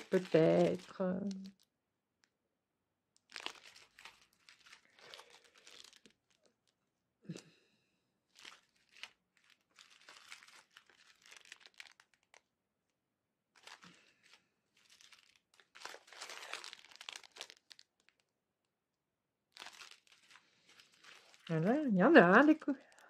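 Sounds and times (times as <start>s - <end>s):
plastic packaging crinkling: 0.0s - 1.7s, 3.2s - 6.8s, 8.3s - 12.5s, 13.5s - 18.3s, 19.5s - 23.0s.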